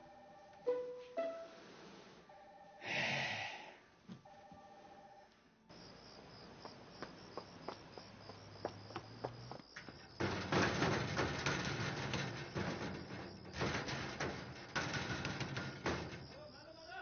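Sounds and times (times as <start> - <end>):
crickets chirping: 5.7 - 17.0
footsteps on pavement: 6.1 - 10.2.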